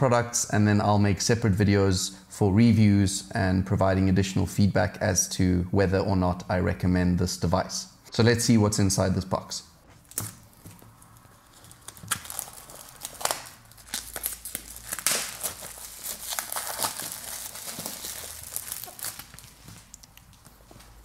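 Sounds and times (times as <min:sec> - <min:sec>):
plastic shrink wrap crinkling: 0:10.0 - 0:21.0.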